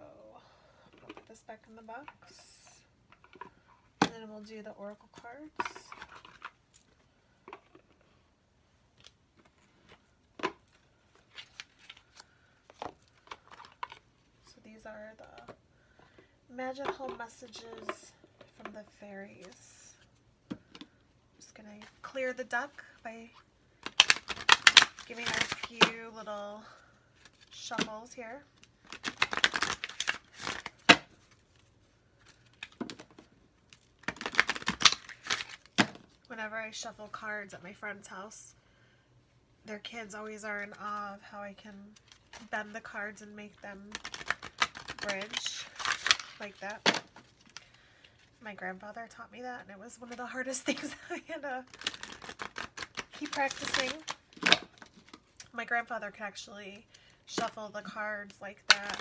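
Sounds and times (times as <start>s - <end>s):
cards shuffling clicks: 23.8s - 25.9s, 28.6s - 33.2s, 34.0s - 36.0s, 43.9s - 47.7s, 51.7s - 55.2s.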